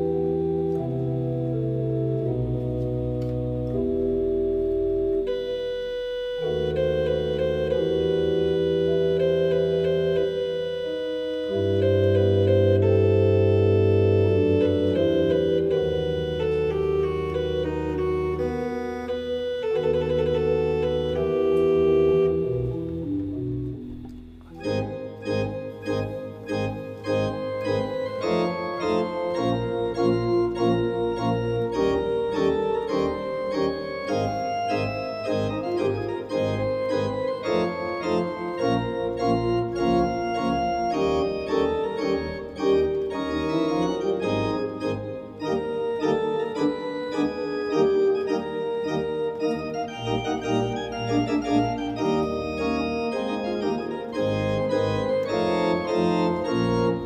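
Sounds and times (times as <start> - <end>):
organ playing quick notes: 0.0 - 57.0.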